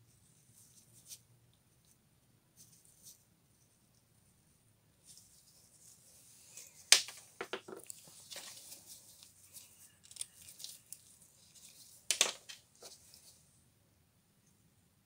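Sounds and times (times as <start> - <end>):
gloves rustling: 5.0 - 13.5.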